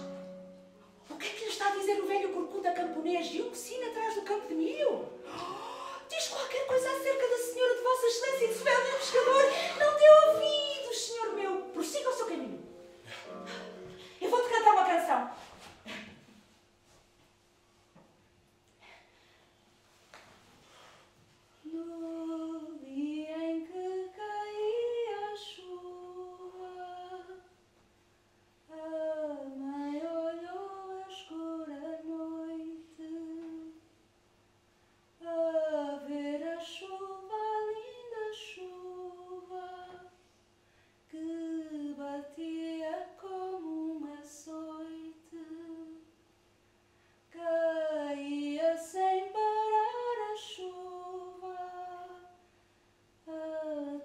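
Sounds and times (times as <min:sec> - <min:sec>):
woman singing slow melody: 0:01.0 - 0:12.7, 0:21.6 - 0:27.5, 0:28.7 - 0:33.9, 0:35.2 - 0:40.2, 0:41.1 - 0:46.1, 0:47.3 - 0:52.4, 0:53.2 - 0:54.0.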